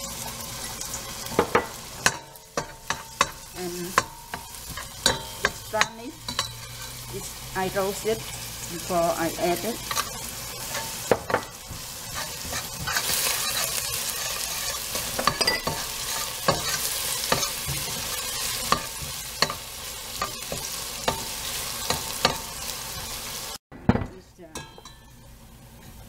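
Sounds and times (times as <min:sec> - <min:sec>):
food sizzling in hot oil: 0:00.0 - 0:23.6
metal spoon scraping a pot: 0:02.0 - 0:07.1, 0:11.7 - 0:19.6.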